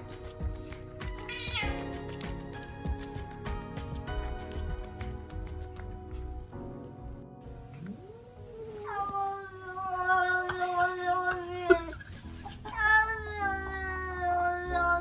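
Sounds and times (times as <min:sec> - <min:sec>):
cat yowling: 0:01.2 - 0:01.9, 0:08.0 - 0:15.0.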